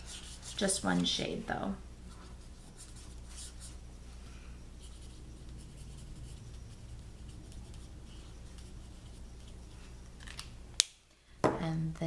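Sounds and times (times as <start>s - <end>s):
marker scratching on paper: 0.0s - 1.0s, 2.1s - 3.8s, 4.8s - 9.8s.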